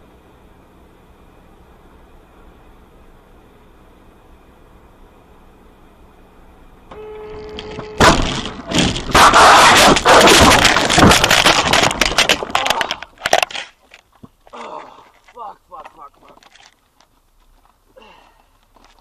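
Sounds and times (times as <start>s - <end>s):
car crash impact: 7.3s - 13.8s
crashing and shattering glass: 8.0s - 13.7s.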